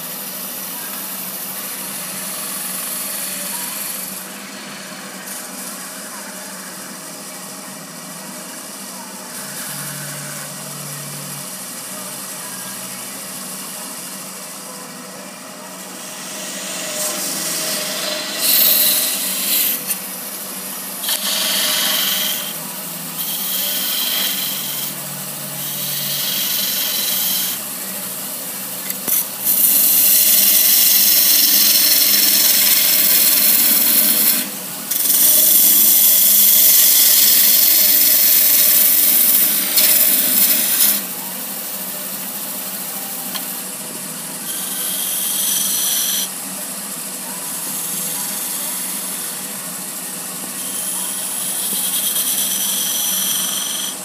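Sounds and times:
wood lathe running: 0.0s - 54.0s
turning tool scraping wood: 16.0s - 22.6s, 23.2s - 25.0s, 50.6s - 54.0s.

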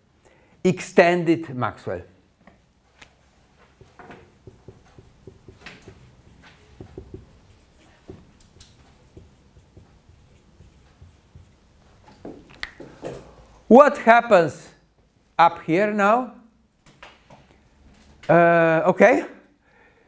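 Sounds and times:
marker writing on whiteboard: 3.6s - 12.6s.

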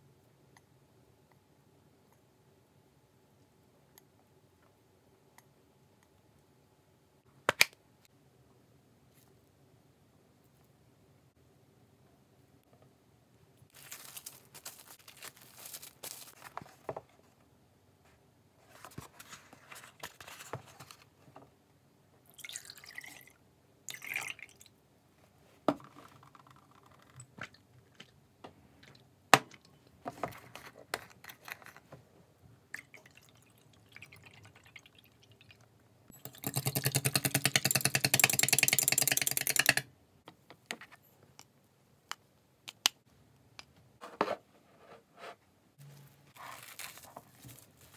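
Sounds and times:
cling wrap crinkling: 13.7s - 16.8s, 46.4s - 47.9s.

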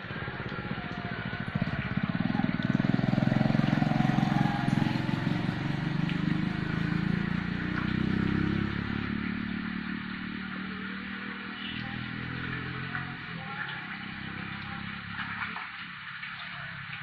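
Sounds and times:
motorbike engine running: 0.0s - 10.6s.

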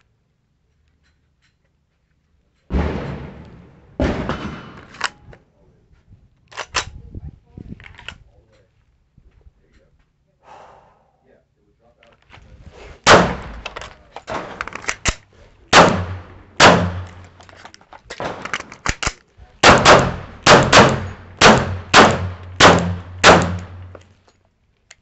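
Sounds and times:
pistol shots: 13.0s - 17.4s, 18.2s - 24.0s.

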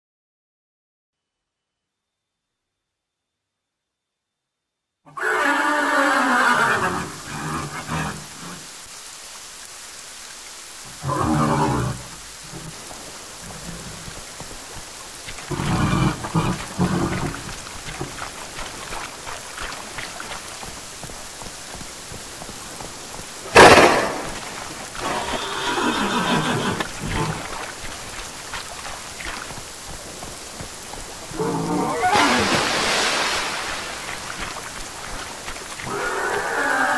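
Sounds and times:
horse-like creature calls: 5.1s - 8.7s, 31.3s - 32.7s, 35.8s - 36.9s
steady rain: 5.1s - 36.9s
sharp loud crack: 23.5s - 24.4s.

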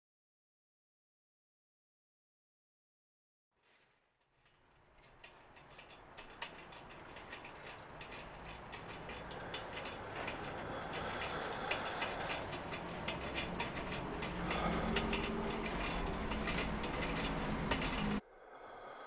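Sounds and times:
mechanical clicking and ticking: 5.1s - 18.2s.

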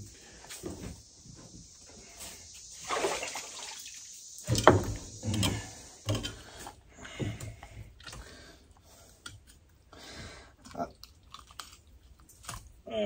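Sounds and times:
water splashing and sloshing: 2.5s - 8.4s.

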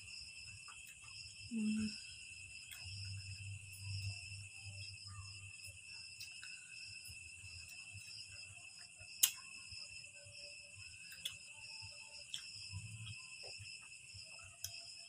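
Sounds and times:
crickets chirring: 0.0s - 15.0s
faint clicks of eating: 2.6s - 3.2s, 6.1s - 6.7s, 7.6s - 9.5s, 11.1s - 14.9s.

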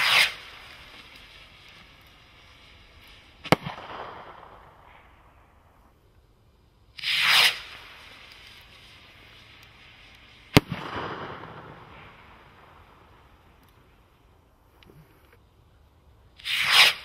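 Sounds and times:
rocket launching whoosh: 0.0s - 0.8s, 3.4s - 5.3s, 7.0s - 8.7s, 10.4s - 12.7s, 16.4s - 17.0s.

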